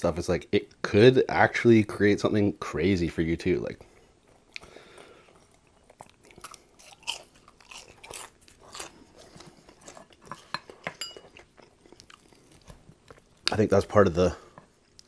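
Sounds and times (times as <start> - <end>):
chewing french fries: 4.4 - 13.7
ringing clink on glass: 11.0 - 11.2.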